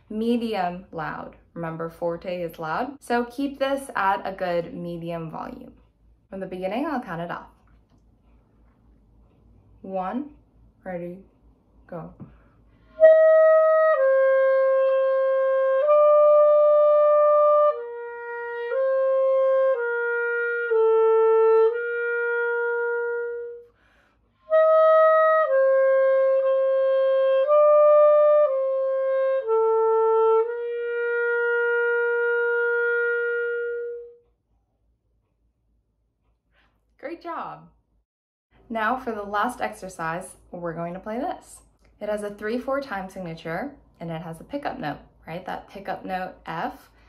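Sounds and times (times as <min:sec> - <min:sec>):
clarinet melody: 0:12.8 - 0:23.8, 0:24.4 - 0:34.3.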